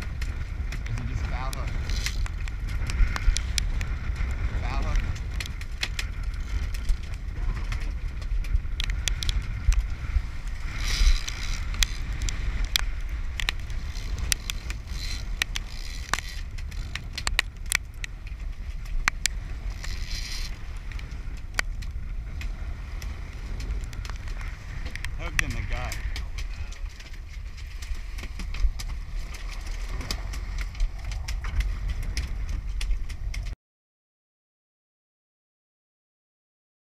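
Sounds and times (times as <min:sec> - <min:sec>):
water washing along hull: 0:00.0 - 0:33.6
wind: 0:00.0 - 0:33.6
sharp clicks and knocks: 0:10.7 - 0:22.5.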